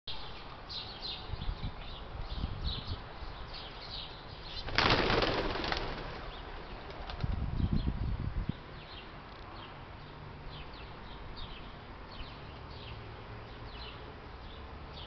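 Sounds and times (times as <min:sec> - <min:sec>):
small birds chirping: 0:00.1 - 0:15.0
pigeon wings flapping: 0:04.7 - 0:07.4.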